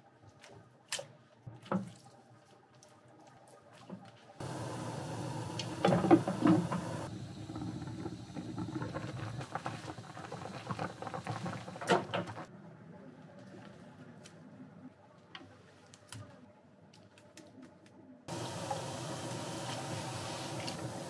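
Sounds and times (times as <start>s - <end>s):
liquid bubbling in a frying pan: 4.4s - 12.5s.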